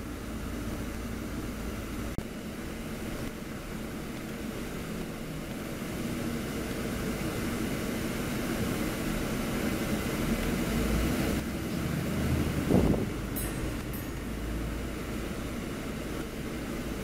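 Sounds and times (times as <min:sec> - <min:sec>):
bus engine hum: 0:00.0 - 0:17.0
road rumble: 0:00.0 - 0:17.0.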